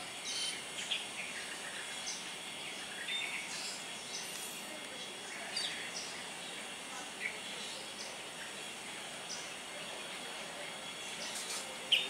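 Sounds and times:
steady background hiss: 0.0s - 12.0s
starlings chirping: 0.1s - 4.6s, 10.8s - 12.0s.

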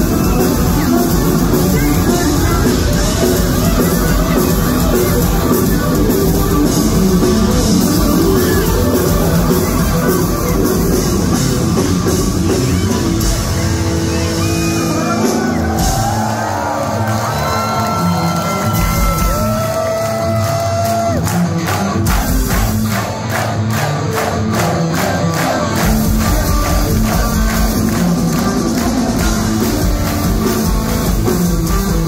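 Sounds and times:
live metal band playing: 0.0s - 32.0s
crowd shouting along: 12.4s - 29.2s
audience clapping in time: 16.6s - 32.0s.

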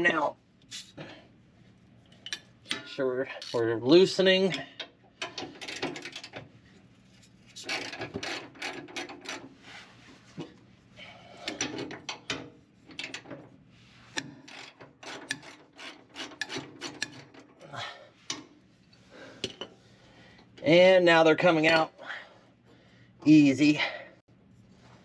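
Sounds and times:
ratchet clicking: 14.2s - 17.3s.

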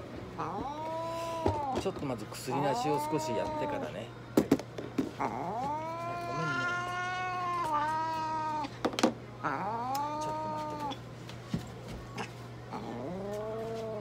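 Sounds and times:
cat yowling: 0.4s - 1.8s, 2.4s - 4.0s, 5.2s - 8.8s, 9.4s - 11.0s, 12.2s - 14.0s.

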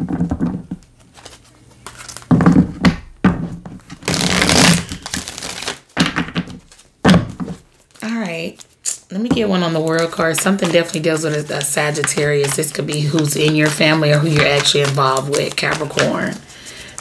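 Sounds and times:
cards riffling together: 3.9s - 6.9s, 9.8s - 17.0s.

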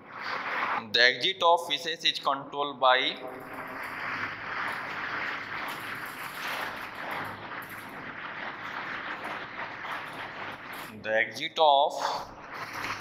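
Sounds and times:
marker scratching on whiteboard: 0.0s - 0.9s, 3.2s - 11.0s, 12.0s - 13.0s.

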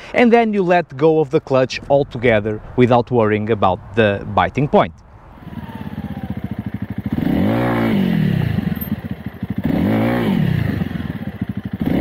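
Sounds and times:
motorcycle engine idling and revving: 5.3s - 12.0s.

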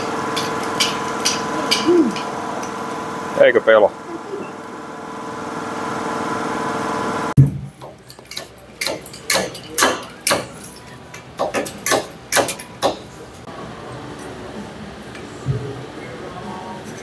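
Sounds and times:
air compressor motor cutting off: 0.0s - 7.4s.

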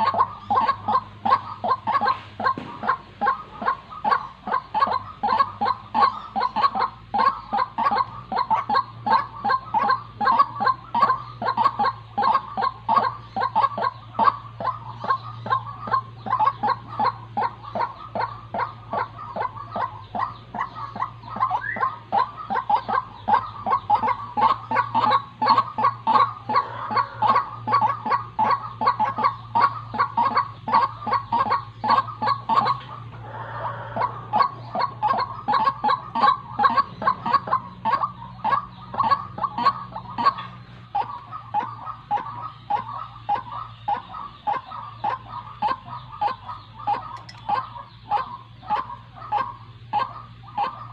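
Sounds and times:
waterhen calling: 0.0s - 50.9s.

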